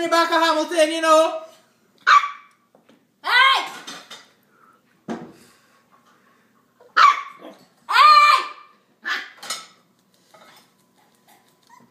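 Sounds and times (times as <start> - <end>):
puppy barking high-pitched: 2.0 - 2.5, 6.8 - 9.4.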